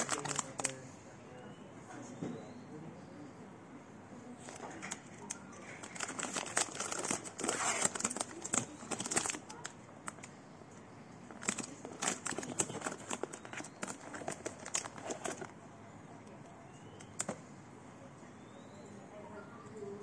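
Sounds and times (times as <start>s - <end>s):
plastic wrapping crinkling: 0.0s - 0.8s, 4.4s - 10.3s, 11.3s - 15.6s
cardboard box rustling: 5.8s - 9.5s, 11.3s - 15.5s.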